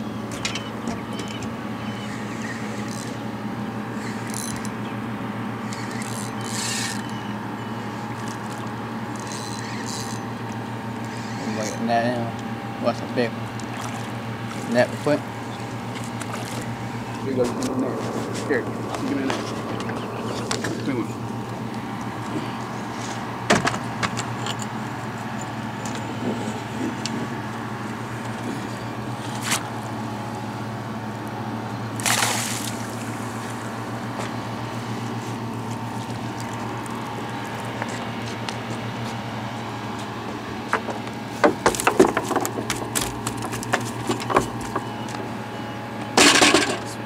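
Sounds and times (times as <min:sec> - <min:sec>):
steady low hum: 0:00.0 - 0:47.0
fish splashing in water: 0:13.6 - 0:14.7, 0:32.0 - 0:33.6
knocks on wooden pier: 0:40.7 - 0:44.9.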